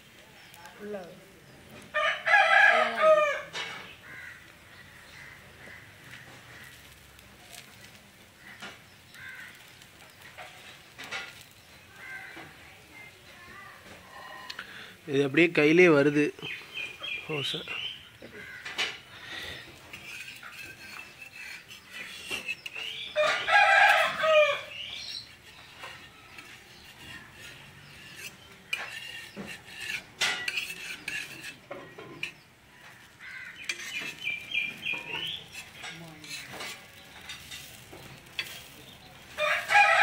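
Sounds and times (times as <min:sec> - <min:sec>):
rooster crowing: 0:01.9 - 0:03.6, 0:23.2 - 0:24.8, 0:39.3 - 0:40.0
spatula clinking on metal pan: 0:25.7 - 0:32.4, 0:33.6 - 0:34.2, 0:34.9 - 0:38.8.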